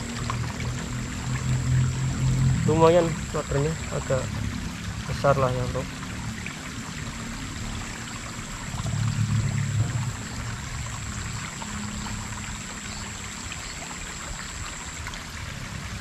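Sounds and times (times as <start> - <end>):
stream water running over rocks: 0.0 - 16.0
thin steady high tone: 0.9 - 4.4
low rumble: 8.6 - 11.6.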